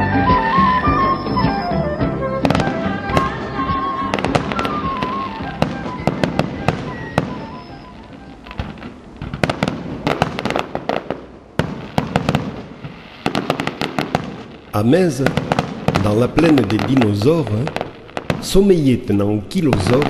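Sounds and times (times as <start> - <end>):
melodic music: 0.0 - 9.2
fireworks bursting bangs: 0.0 - 20.0.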